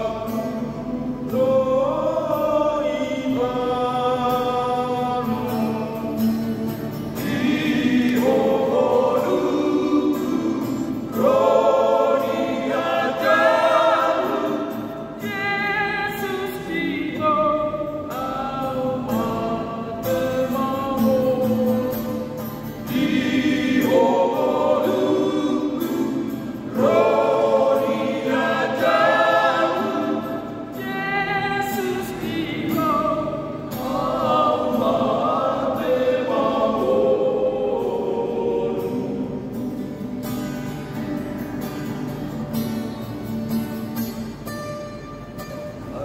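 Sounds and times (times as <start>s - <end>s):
male group singing a hymn: 0.0s - 39.6s
strummed acoustic guitar: 0.0s - 46.0s.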